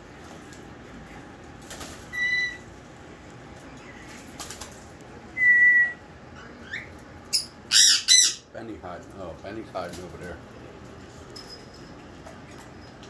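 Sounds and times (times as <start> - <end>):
parrot whistling: 5.4 - 8.4
parrot squawking: 6.4 - 8.5.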